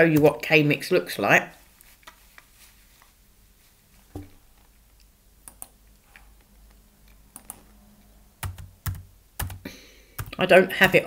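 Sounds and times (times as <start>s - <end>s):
soft knock: 4.1s - 4.4s
computer mouse clicks: 5.4s - 5.8s, 7.3s - 7.7s.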